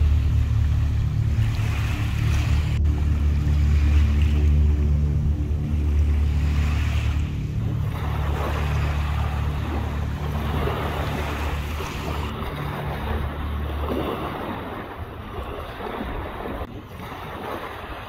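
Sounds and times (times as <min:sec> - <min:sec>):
waves washing onto pebbles: 0:00.0 - 0:04.8
low engine hum: 0:00.0 - 0:18.0.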